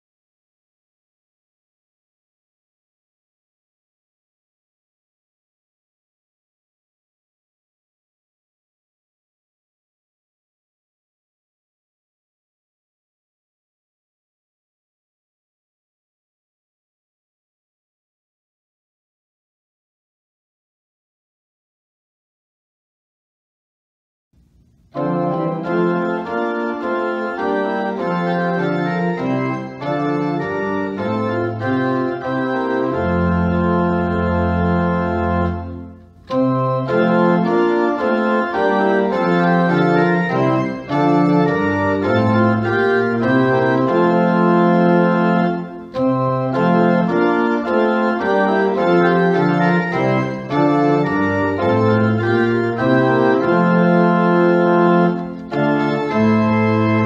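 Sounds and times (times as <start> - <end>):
organ playing held chords: 24.8 - 57.0.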